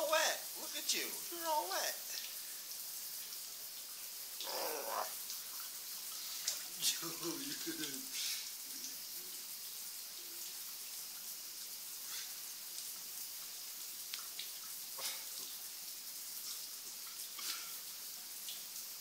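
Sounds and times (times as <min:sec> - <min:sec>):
shower spray running: 0:00.0 - 0:19.0.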